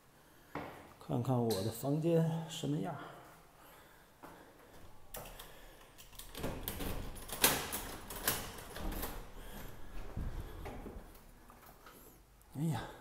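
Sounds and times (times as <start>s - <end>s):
key working a door lock: 5.1s - 9.3s
door being opened: 6.1s - 11.8s.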